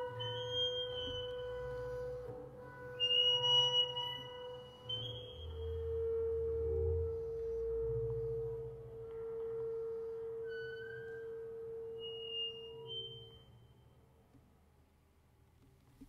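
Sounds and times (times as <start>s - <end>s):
double bass bowed harmonics: 0.0s - 13.9s
thin high whistling tone: 9.5s - 13.9s.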